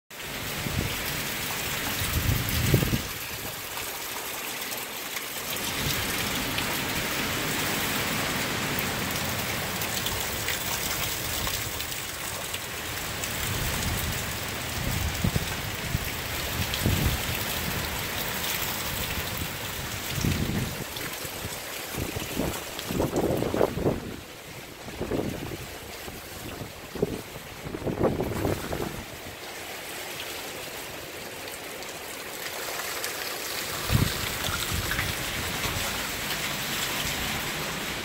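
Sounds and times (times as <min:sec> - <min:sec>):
heavy rain pouring: 0:00.1 - 0:38.0
wind gusts buffeting microphone: 0:02.0 - 0:03.5, 0:20.0 - 0:20.9, 0:22.0 - 0:29.2, 0:33.8 - 0:35.8.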